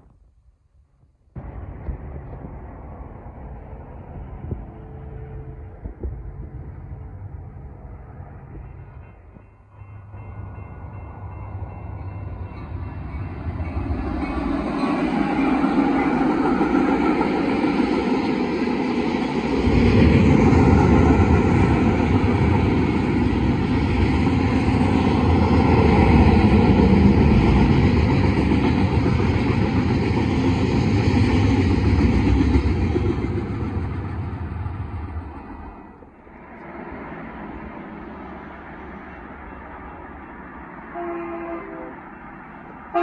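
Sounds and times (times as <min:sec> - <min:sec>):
freight train locomotives: 0:00.0 - 0:43.0
deep rumble: 0:01.4 - 0:08.6
freight cars rolling on rails: 0:01.4 - 0:43.0.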